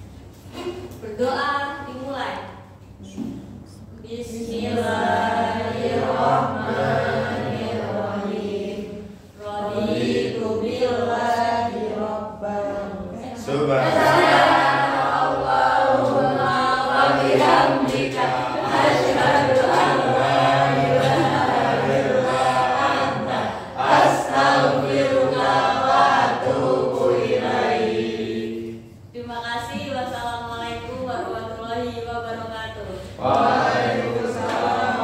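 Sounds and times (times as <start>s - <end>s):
students reciting in unison: 4.2s - 29.0s, 33.1s - 35.0s.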